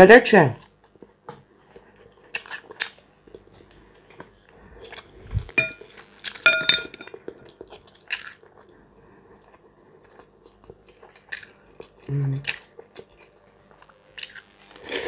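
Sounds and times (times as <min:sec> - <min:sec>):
fork clinking on ceramic bowl: 0:05.6 - 0:05.8, 0:06.5 - 0:07.1.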